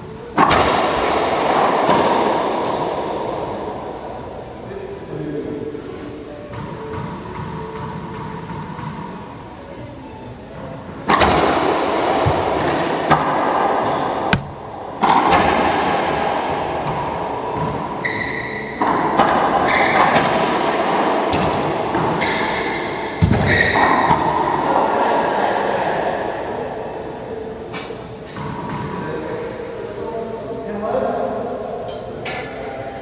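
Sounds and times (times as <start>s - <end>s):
racquet smacking ball: 11.1s - 16.0s
ball hitting court walls: 12.2s - 15.9s.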